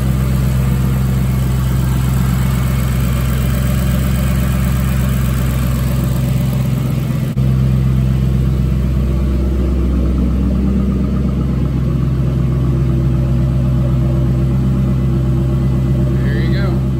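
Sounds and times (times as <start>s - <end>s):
car engine idling: 0.0s - 16.9s.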